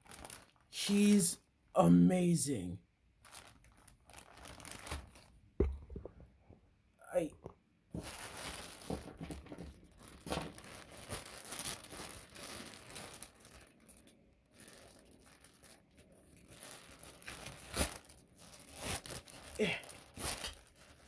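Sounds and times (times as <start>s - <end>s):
plastic bag crinkling: 0.0s - 0.7s, 3.2s - 5.4s, 8.0s - 21.0s.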